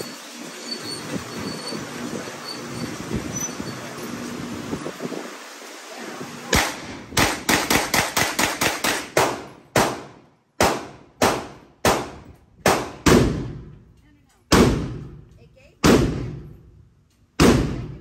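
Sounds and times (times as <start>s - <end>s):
semi-automatic gunshots: 6.5s - 13.7s.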